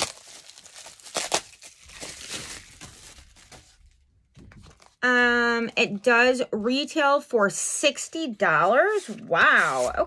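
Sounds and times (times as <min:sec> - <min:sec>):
sharp plastic crackle: 0:00.0 - 0:03.8
bubble-wrap mailer crinkling: 0:00.0 - 0:04.0.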